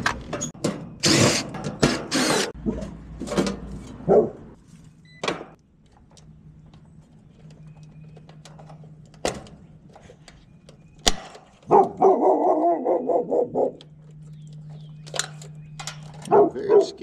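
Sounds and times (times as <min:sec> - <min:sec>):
dog barking: 0:04.1 - 0:04.4, 0:11.7 - 0:13.8, 0:16.3 - 0:17.0
heat pump humming: 0:11.6 - 0:17.0.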